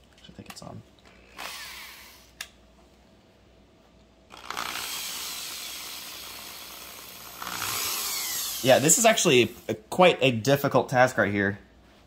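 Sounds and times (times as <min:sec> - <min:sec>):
small electric drill whirring: 0:01.2 - 0:02.4, 0:04.3 - 0:09.6.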